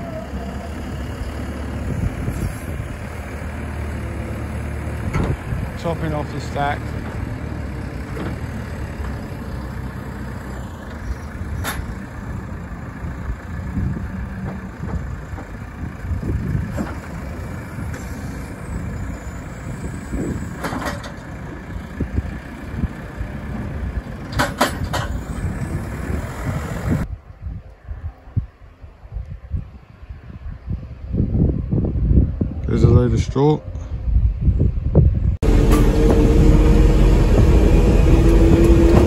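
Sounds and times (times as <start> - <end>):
diesel engine running: 0.0 - 27.1, 35.4 - 39.0.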